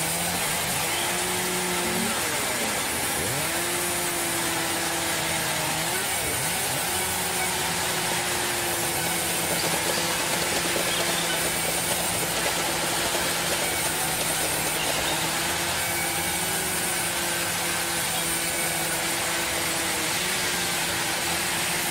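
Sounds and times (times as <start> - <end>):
band saw cutting boards: 0.0 - 21.9.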